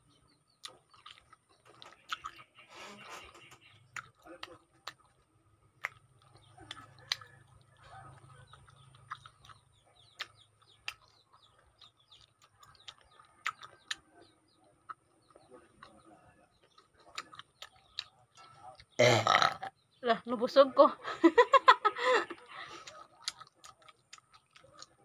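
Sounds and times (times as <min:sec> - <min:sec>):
wet chewing and lip-smacks: 0:00.5 - 0:02.6, 0:03.4 - 0:19.0, 0:22.3 - 0:25.0
faint bird calls: 0:01.8 - 0:04.1.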